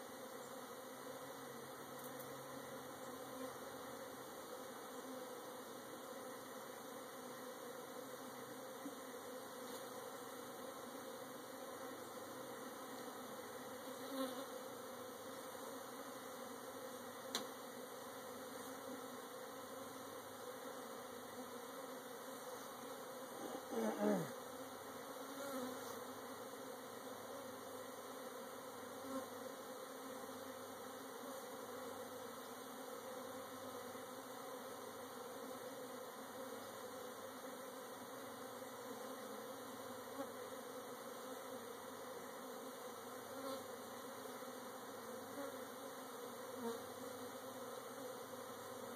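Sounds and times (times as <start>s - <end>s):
bee flying past: 0.0s - 48.9s
bees buzzing: 0.0s - 48.9s
faint click: 2.0s - 2.3s, 17.3s - 17.5s.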